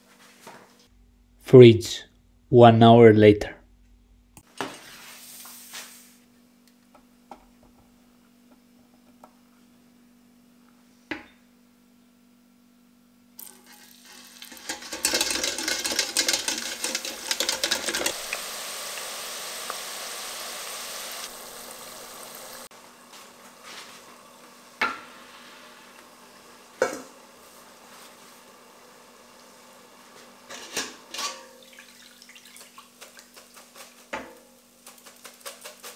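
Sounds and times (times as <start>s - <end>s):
deep-fryer oil sizzling: 13.4s - 35.9s.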